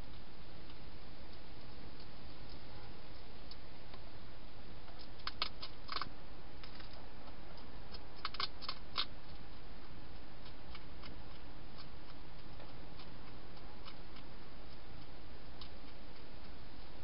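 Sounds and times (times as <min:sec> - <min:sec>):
steady hiss: 0:00.0 - 0:17.0
hedgehog crunching dry food: 0:04.8 - 0:17.0.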